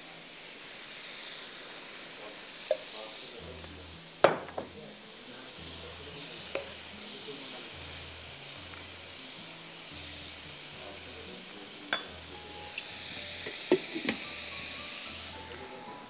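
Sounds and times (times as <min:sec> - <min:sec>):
vegetables sizzling in a pot: 0:00.0 - 0:16.0.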